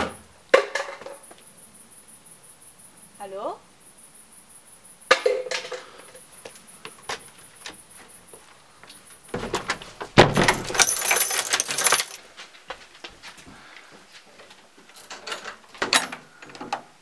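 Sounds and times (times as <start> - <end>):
door slamming: 9.4 - 11.7.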